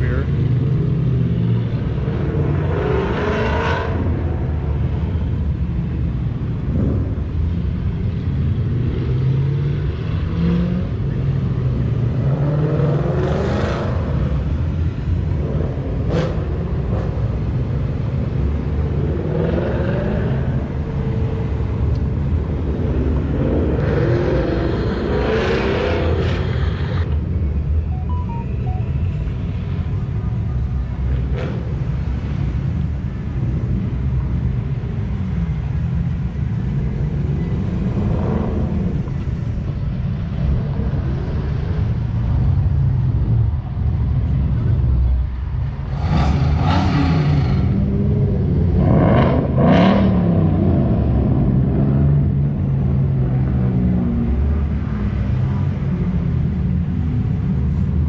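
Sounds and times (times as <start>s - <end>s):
cars driving past: 0.0s - 58.0s.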